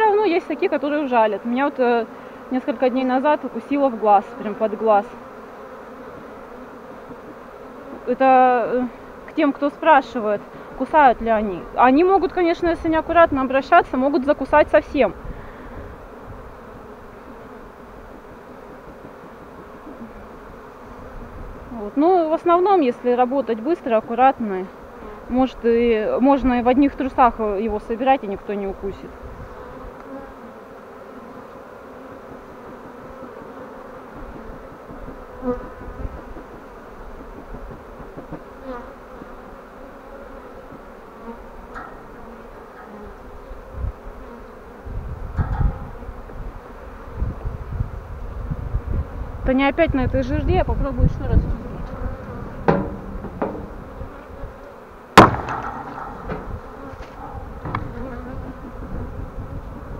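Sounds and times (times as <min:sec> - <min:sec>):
bees buzzing: 0:00.0 - 0:59.9
sharp loud knock: 0:52.6 - 0:53.8, 0:55.2 - 0:56.5.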